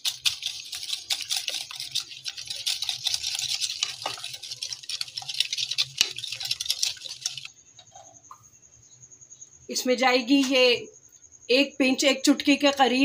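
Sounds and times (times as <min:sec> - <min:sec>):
wire whisk beating in bowl: 0:00.0 - 0:07.5.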